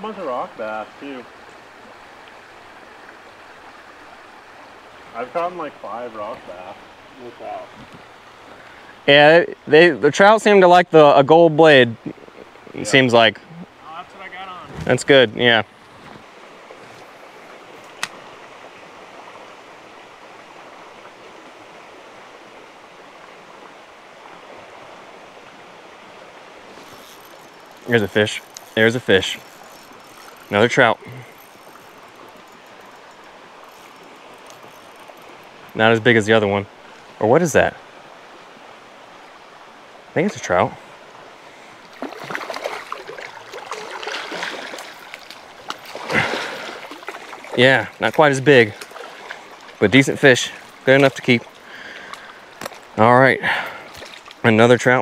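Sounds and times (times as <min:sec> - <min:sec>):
river current rushing: 0:00.0 - 0:55.0
fish thrashing and splashing: 0:41.9 - 0:47.6, 0:48.7 - 0:49.8, 0:50.6 - 0:54.4.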